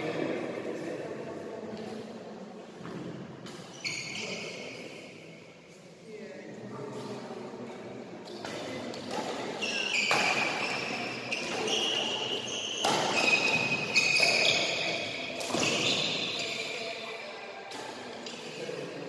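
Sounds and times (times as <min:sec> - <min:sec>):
shoes squeaking on court floor: 0:02.9 - 0:05.1, 0:08.3 - 0:18.5
racket hitting shuttlecock: 0:08.2 - 0:16.6.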